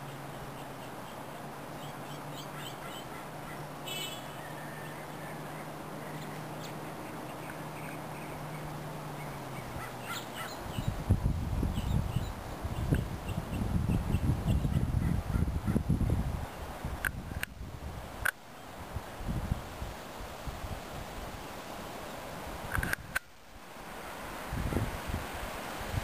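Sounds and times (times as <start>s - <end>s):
nuthatch calls: 0.0s - 11.0s.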